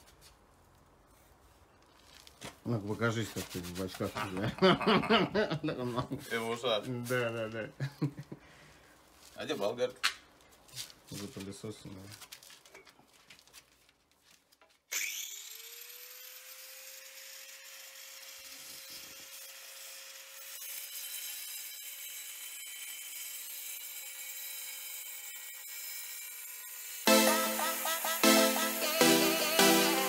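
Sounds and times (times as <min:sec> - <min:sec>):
angle grinder cutting tile: 0:14.9 - 0:30.0.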